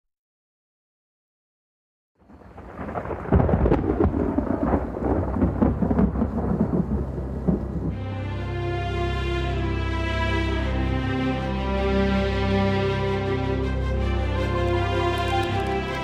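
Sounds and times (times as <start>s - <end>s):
thunder-like rumble with crackles: 2.2s - 8.0s, 14.6s - 16.0s
music with long held chords: 5.4s - 16.0s.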